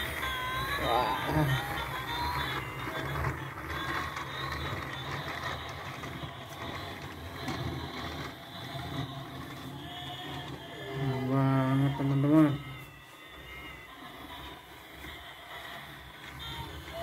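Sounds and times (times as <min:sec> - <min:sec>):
toy train motor whir: 0:00.0 - 0:17.0.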